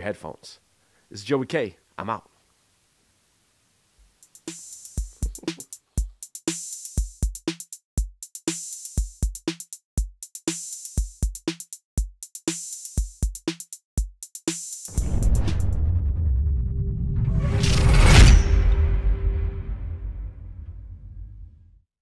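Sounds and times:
electronic drum beat: 4.0 - 15.8.

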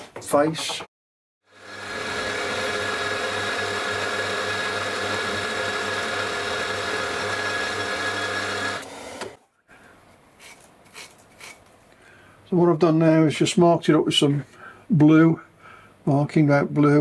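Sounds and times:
milling machine whine: 1.5 - 9.4
brushing scrapes of chips: 10.4 - 11.7.

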